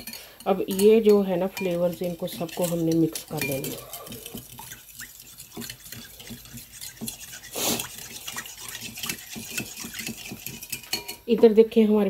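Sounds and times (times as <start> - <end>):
spoon clicking against bowl: 0.0 - 4.8
spoon stirring thick sauce: 0.0 - 11.4.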